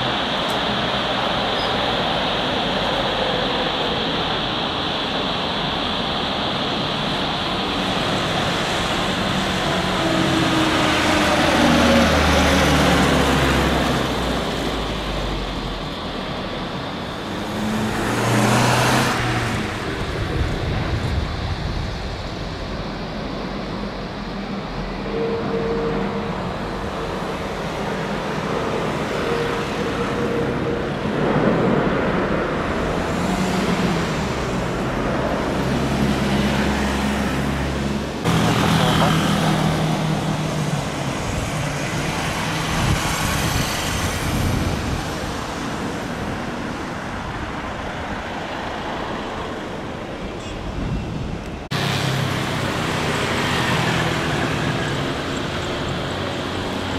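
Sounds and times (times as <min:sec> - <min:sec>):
jet airliners passing: 0:00.0 - 0:56.9.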